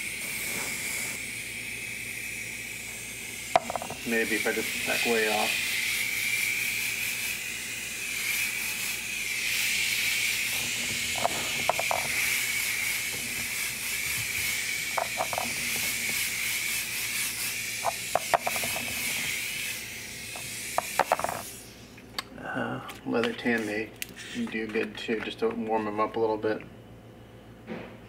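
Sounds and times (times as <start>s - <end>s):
airbrush hissing: 0.0s - 21.9s.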